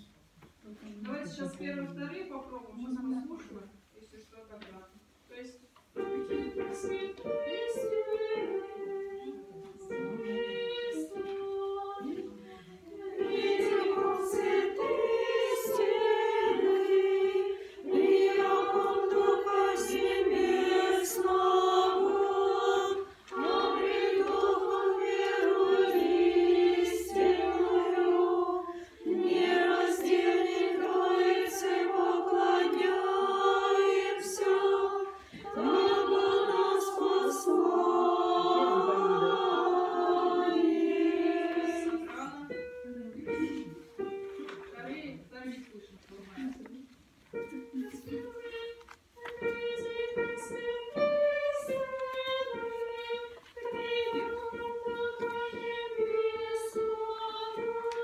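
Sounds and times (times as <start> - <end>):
choir chanting unaccompanied: 6.0 - 42.6, 49.3 - 58.0.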